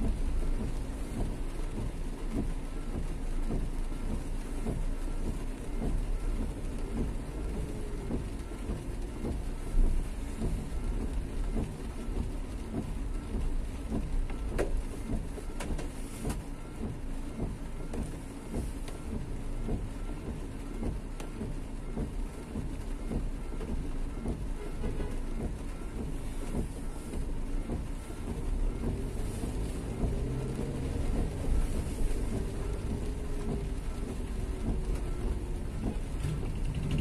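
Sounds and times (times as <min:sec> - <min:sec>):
steady rain falling: 0:00.0 - 0:37.0
road traffic passing: 0:26.9 - 0:37.0.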